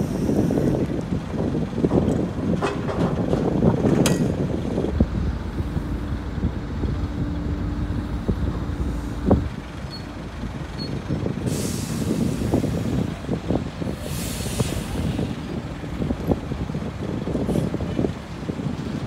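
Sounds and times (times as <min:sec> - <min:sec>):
crane machinery rumbling: 0:00.0 - 0:19.0
low hum: 0:04.9 - 0:10.9
hiss of released air: 0:11.4 - 0:13.1, 0:13.9 - 0:15.4.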